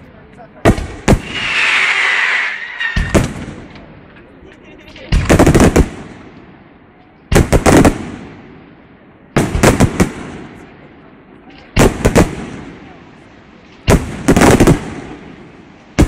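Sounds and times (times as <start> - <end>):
fireworks bursting with sharp bangs: 0.4 - 4.1, 4.8 - 16.0.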